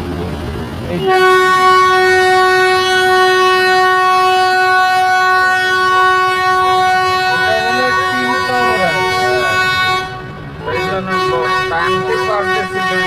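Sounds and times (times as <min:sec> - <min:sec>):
train whistle: 0:01.0 - 0:13.0.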